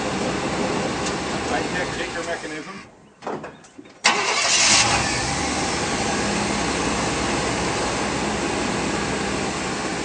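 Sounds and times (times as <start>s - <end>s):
pickup engine running: 4.1s - 10.0s.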